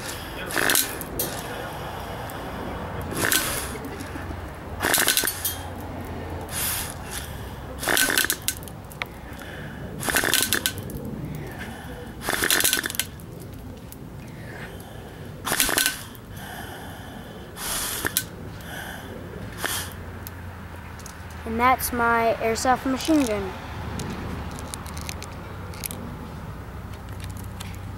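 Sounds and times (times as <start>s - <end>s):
airsoft gun air bursts: 0.0s - 2.4s, 3.1s - 4.2s, 4.8s - 5.7s, 6.5s - 8.6s, 9.4s - 10.8s, 11.6s - 13.1s, 15.4s - 16.9s, 17.6s - 20.0s.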